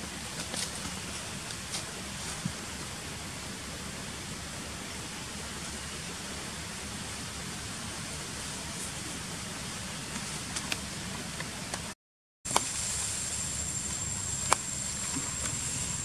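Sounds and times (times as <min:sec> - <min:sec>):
steady forest hiss: 0:00.0 - 0:16.0
high-pitched whine: 0:12.6 - 0:16.0.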